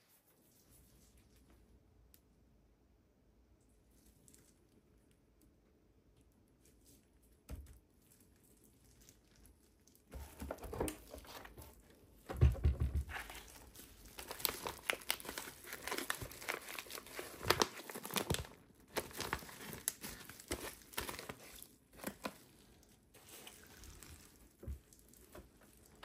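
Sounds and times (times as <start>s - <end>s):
plastic bag crinkling: 13.1s - 26.0s.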